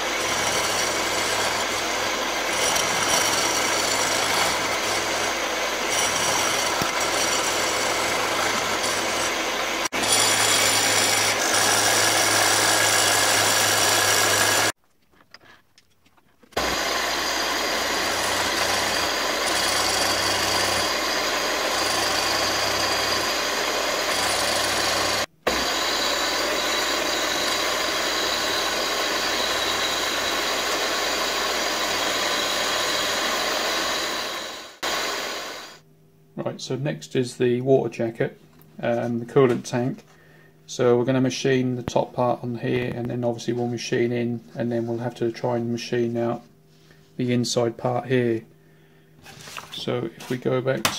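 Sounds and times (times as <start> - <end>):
milling machine motor hum: 0.0 - 14.7, 16.6 - 35.8
end mill cutting metal: 0.0 - 14.8, 16.6 - 35.8.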